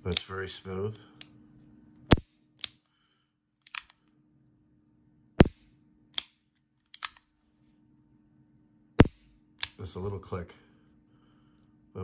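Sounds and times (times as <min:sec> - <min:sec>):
revolver dry-fire metallic clicks: 0:03.6 - 0:04.0, 0:06.2 - 0:07.3.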